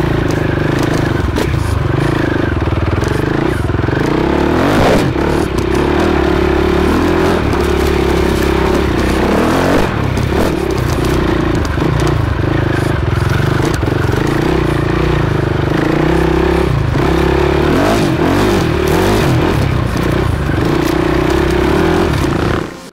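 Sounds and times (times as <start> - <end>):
motorcycle engine running: 0.0 - 22.9
knocks and rattles: 2.9 - 14.9.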